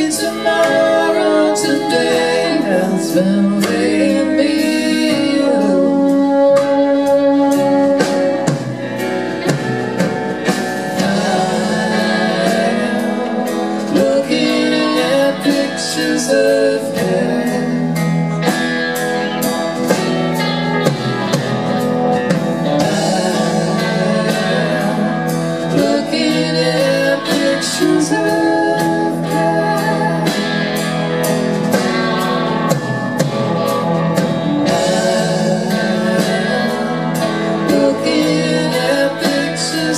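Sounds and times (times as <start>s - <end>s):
live band playing: 0.0s - 39.9s.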